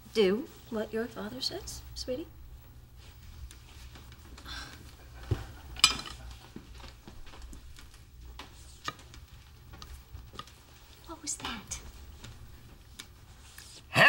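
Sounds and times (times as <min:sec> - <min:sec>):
cutlery and dishes clinking: 0:05.6 - 0:06.4.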